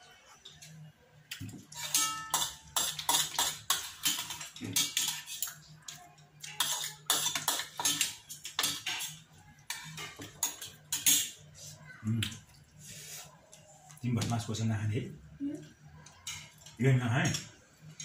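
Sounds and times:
metal spoon scraping metal bowl: 1.7 - 5.6, 6.4 - 11.4.

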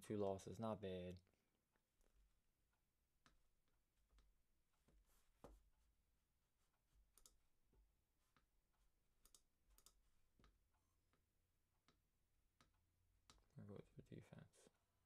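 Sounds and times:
computer mouse clicks: 7.1 - 7.4, 9.2 - 10.6.

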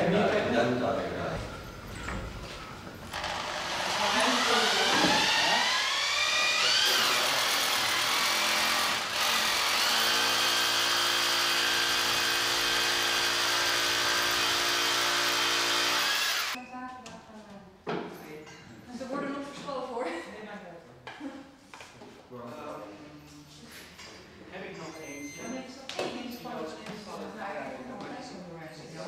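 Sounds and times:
motor running: 3.1 - 16.6.

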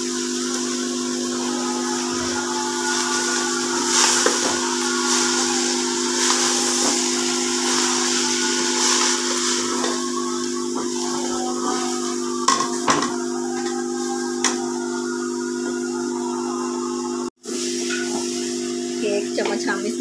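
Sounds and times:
leaves frying and hissing: 0.0 - 19.8.

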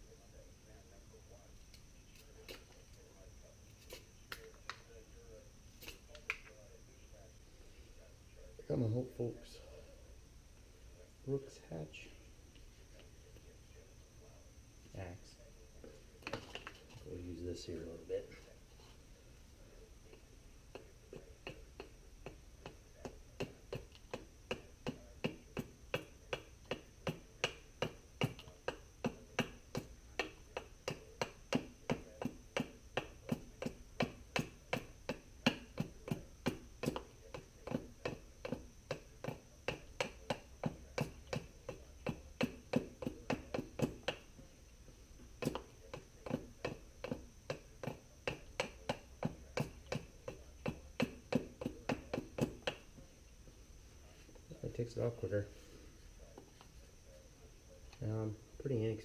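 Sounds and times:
hatchet chopping wood: 21.4 - 44.3, 45.4 - 52.9.

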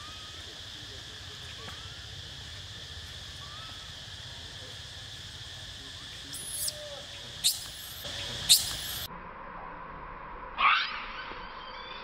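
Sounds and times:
insects droning: 0.0 - 9.1.

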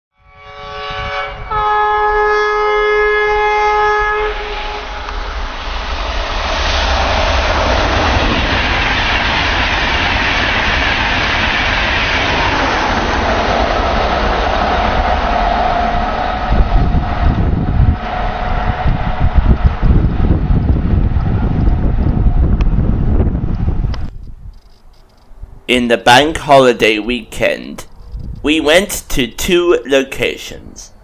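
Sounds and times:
train horn two notes: 0.2 - 5.0
express train passing at speed: 0.2 - 24.4, 25.2 - 31.0.

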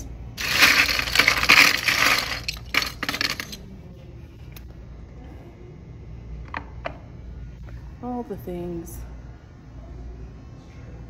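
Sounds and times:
metal buttons clinking and rattling: 0.4 - 3.6.

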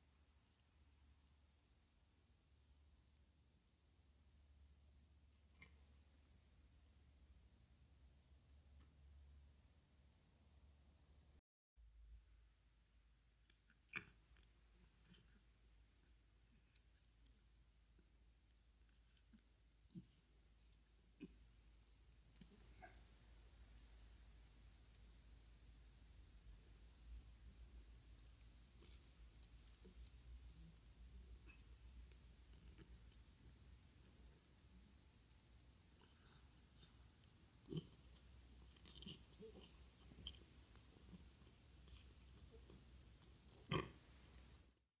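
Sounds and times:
kittens eating: 13.4 - 17.0, 35.9 - 43.9.

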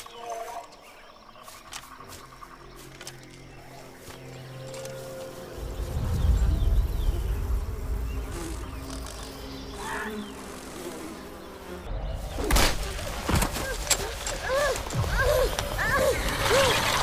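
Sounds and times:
flies buzzing: 0.0 - 17.0
deep rumble: 5.6 - 9.7.

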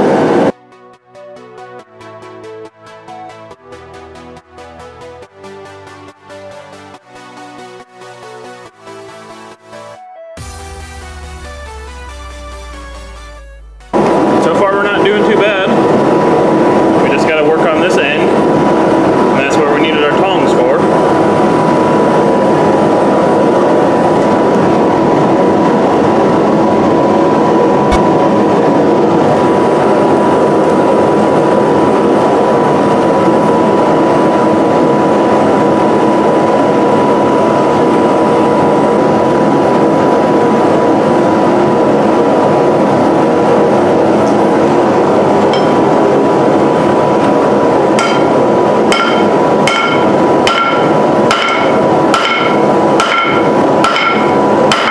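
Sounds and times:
forge burner rushing: 0.0 - 0.6, 13.9 - 54.9
thin steady whine: 0.0 - 0.6, 10.4 - 54.9
hammer blows on hot steel: 48.0 - 54.9.

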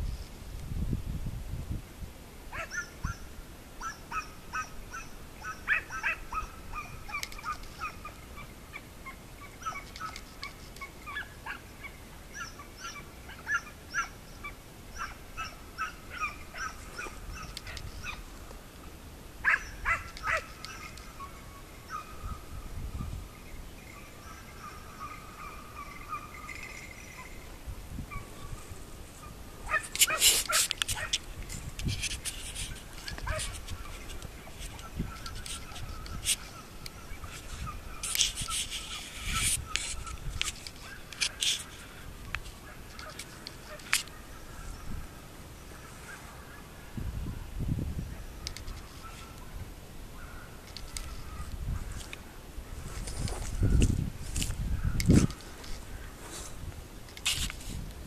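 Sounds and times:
hunting dogs yelping barks: 2.5 - 18.3, 19.4 - 22.4, 23.9 - 27.5, 28.1 - 31.3, 32.5 - 41.6, 42.6 - 44.4, 48.6 - 49.4.

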